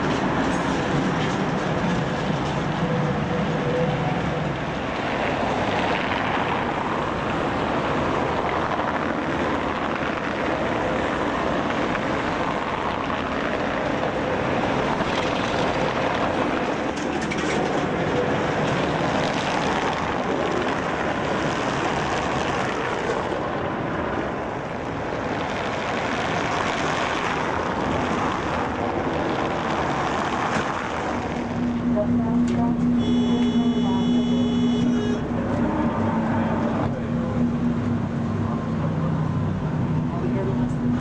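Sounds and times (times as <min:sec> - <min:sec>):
trams passing: 0:00.0 - 0:34.2
cars passing on city road: 0:00.0 - 0:41.0.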